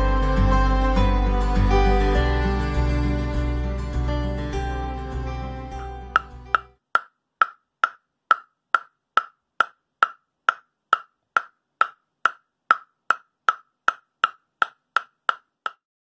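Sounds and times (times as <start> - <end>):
ball tapping on wooden paddle: 6.1 - 15.8.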